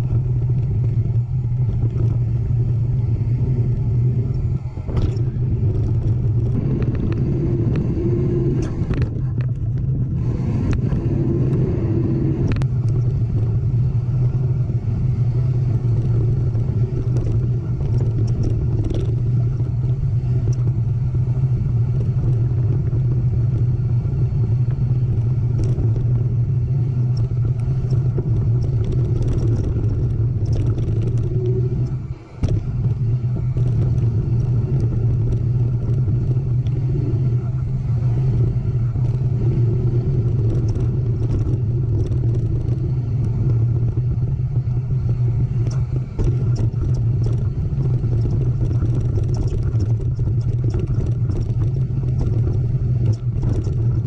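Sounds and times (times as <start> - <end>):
bike clicks and rattles: 0.0 - 2.8, 3.4 - 10.1, 15.8 - 54.0
wind and trail rumble: 0.0 - 54.0.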